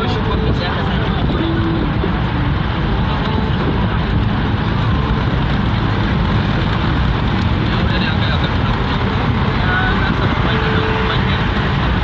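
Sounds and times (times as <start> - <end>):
car cabin road noise: 0.0 - 12.0.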